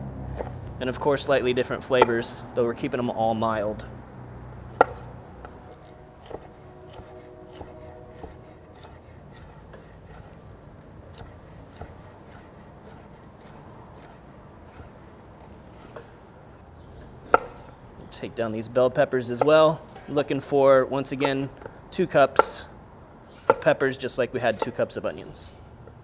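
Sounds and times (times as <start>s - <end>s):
knife slicing on wooden board: 4.7s - 16.2s.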